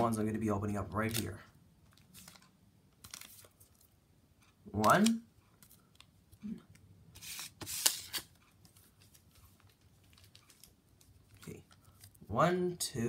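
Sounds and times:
foil wrappers crinkling: 9.0 - 12.2.

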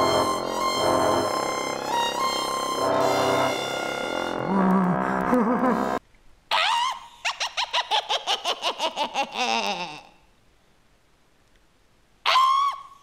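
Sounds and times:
rising squeal and cackling: 0.0 - 6.0.

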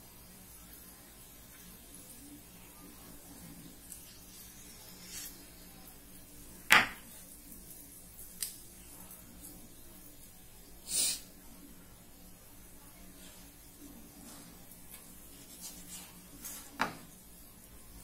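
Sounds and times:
knife knocking on wooden board: 6.7 - 7.0.

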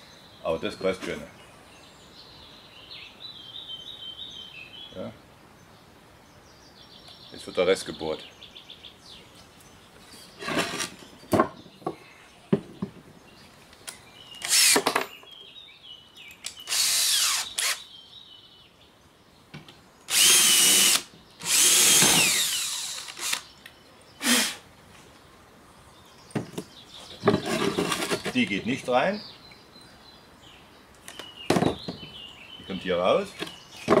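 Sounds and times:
cordless drill drilling into board: 10.5 - 10.9, 14.4 - 14.8, 16.7 - 17.8, 20.1 - 23.5, 24.2 - 24.6.

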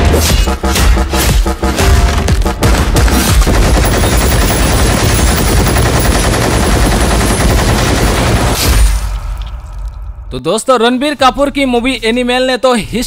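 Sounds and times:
machine gun firing rapidly: 1.6 - 8.6.

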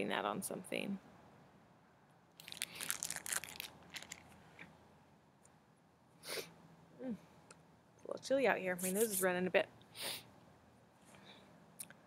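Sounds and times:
plastic sleeve crinkling: 2.4 - 4.7
person sniffing: 6.2 - 6.6.

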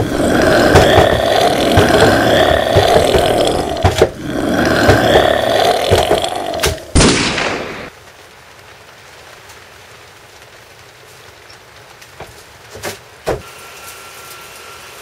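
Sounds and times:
loud rough pulsing noise: 0.0 - 7.0
gunshot: 7.0 - 7.9.

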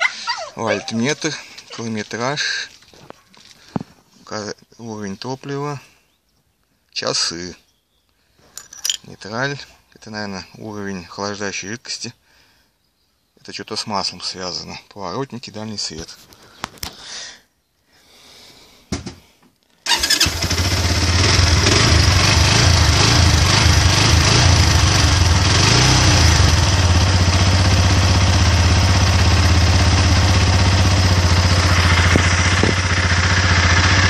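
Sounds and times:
motorcycle engine idling: 19.9 - 34.0.

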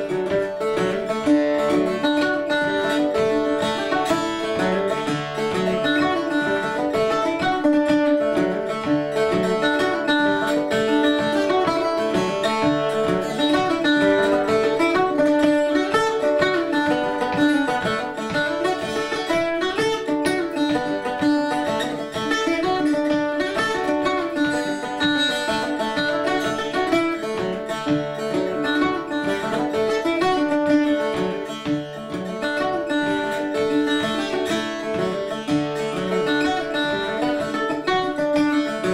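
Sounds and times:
plucked guitar jig melody: 0.0 - 38.9.

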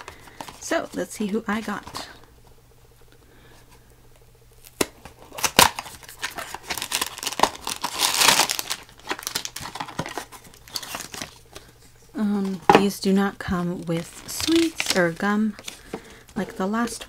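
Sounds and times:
cardboard ripping: 4.6 - 11.4
cardboard snapping: 4.6 - 11.7.

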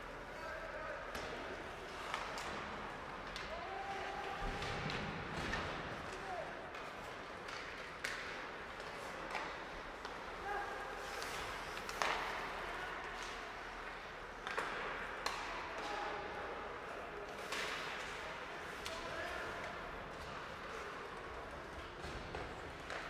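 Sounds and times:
hockey sticks and puck clacking: 1.0 - 23.0.

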